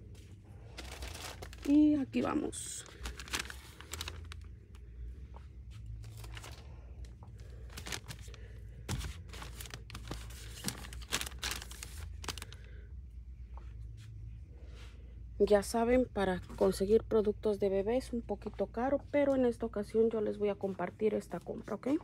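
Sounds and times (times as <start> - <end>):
low steady hum: 0.0 - 22.0
plastic packs crinkling: 0.6 - 4.8, 6.0 - 12.8.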